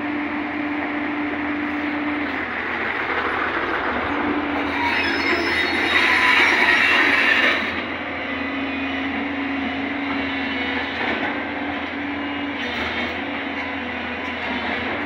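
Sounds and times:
diesel engine humming: 0.0s - 5.9s
steel tracks rattling: 1.6s - 8.2s, 9.1s - 15.0s.

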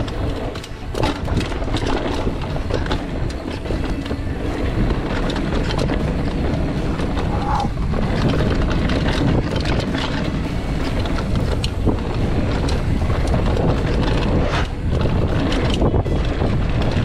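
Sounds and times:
bike rattling over bumps: 0.0s - 17.0s
bike tyre noise: 0.0s - 17.0s
wind rushing over microphone: 0.0s - 17.0s.

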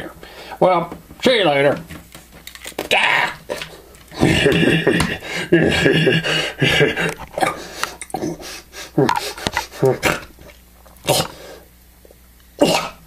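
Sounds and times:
man imitating an ape: 2.9s - 6.3s, 7.4s - 10.4s, 11.0s - 11.4s, 12.6s - 13.0s.

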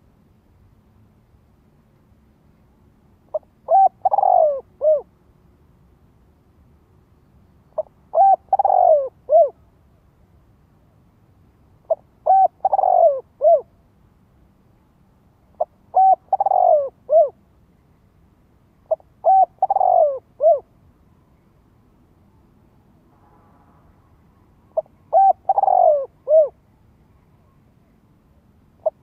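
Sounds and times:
dove cooing: 3.3s - 5.1s, 7.8s - 9.6s, 11.9s - 13.7s, 15.5s - 17.4s, 18.9s - 20.7s, 24.8s - 26.6s, 28.8s - 29.0s.

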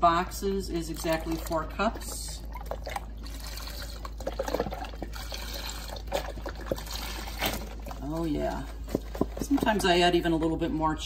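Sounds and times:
broth pouring into a metal pot: 0.7s - 9.4s.

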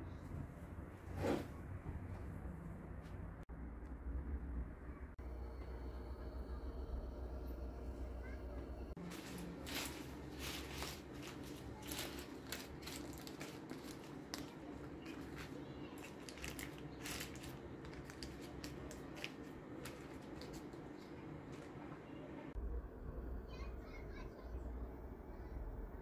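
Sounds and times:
baking paper crinkling: 9.0s - 21.8s.

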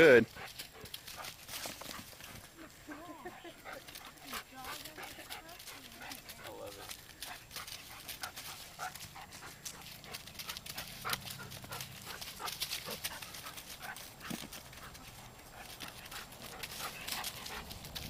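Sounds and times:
footfalls crunching on dry leaves: 5.6s - 18.0s.

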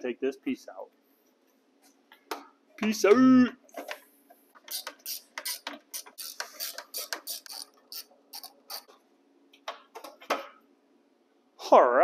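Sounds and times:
ratchet wrench clicking: 4.7s - 8.9s.

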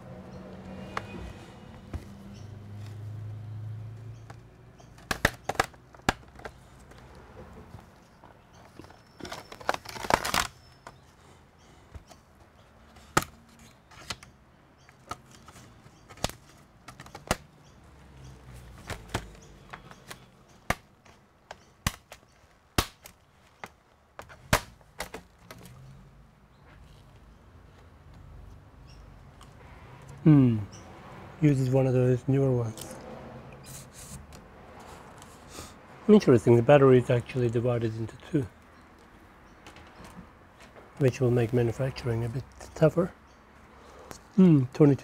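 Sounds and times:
plastic clips popping loose: 4.2s - 7.0s
plastic crackling: 4.8s - 11.1s.

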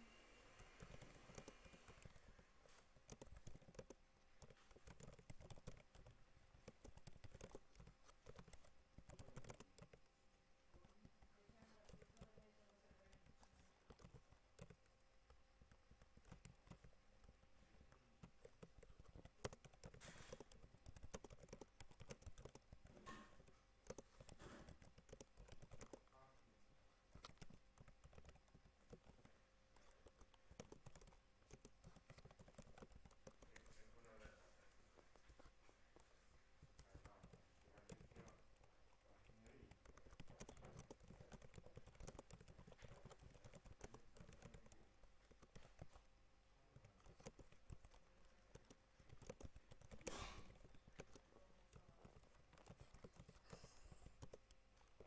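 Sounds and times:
keyboard typing: 0.0s - 55.0s.

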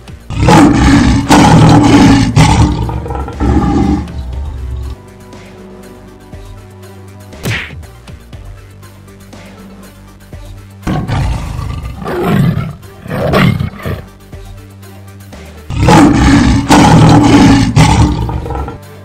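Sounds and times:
quiet background music: 0.0s - 19.0s
big cat roaring: 0.3s - 5.0s, 10.9s - 14.1s, 15.7s - 18.9s.

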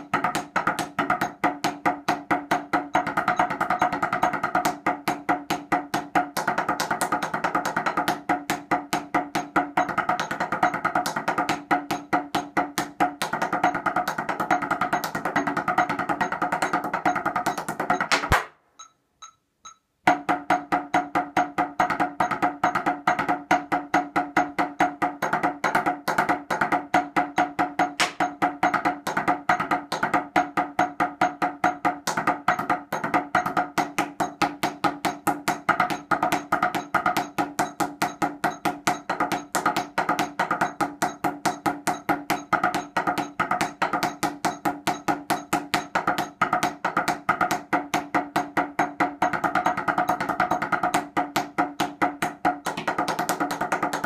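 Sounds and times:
drumsticks on practice pads: 0.0s - 54.0s
faint evenly spaced ticks: 18.8s - 19.8s.

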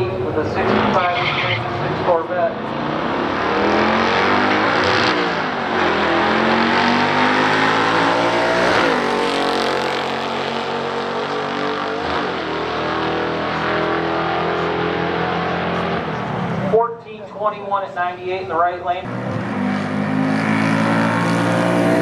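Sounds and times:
cars accelerating hard: 0.0s - 16.8s, 19.0s - 22.0s.

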